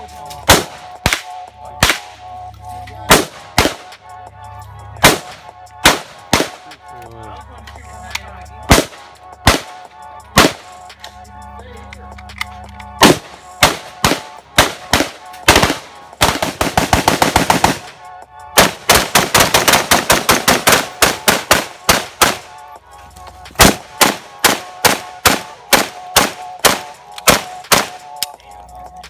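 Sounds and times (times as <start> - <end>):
rifle gunfire: 0.5 - 2.0, 3.1 - 3.9, 5.0 - 6.7, 8.7 - 9.8, 10.4 - 10.7, 13.0 - 17.9, 18.6 - 22.5, 23.6 - 28.0.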